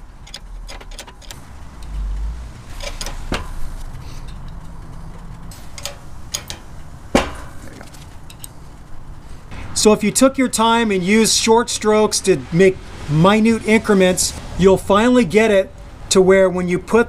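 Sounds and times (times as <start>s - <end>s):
metallic clicks from axle press: 0.0s - 8.6s.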